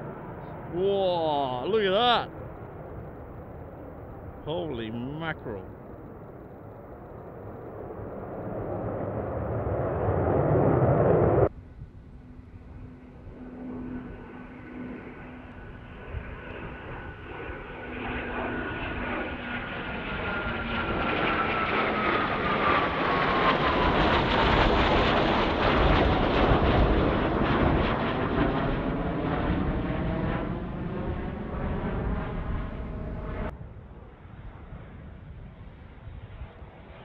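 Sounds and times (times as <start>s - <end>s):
jet whine falling in pitch: 0.0s - 3.5s, 4.2s - 23.9s
fighter jets passing overhead: 0.0s - 37.0s.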